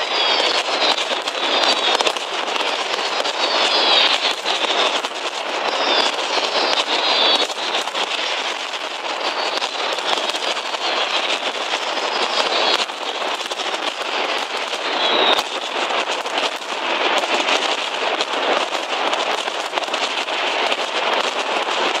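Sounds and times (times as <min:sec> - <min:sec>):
firecrackers banging: 0:00.0 - 0:22.0.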